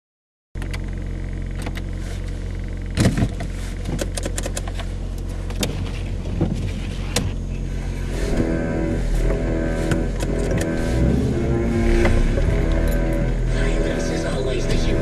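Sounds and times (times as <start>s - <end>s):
car engine running: 0.6s - 15.0s.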